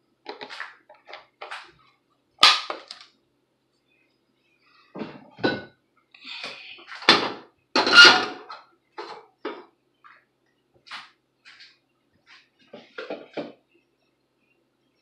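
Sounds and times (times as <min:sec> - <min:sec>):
cookware knocking and clanking: 0:13.0 - 0:13.6.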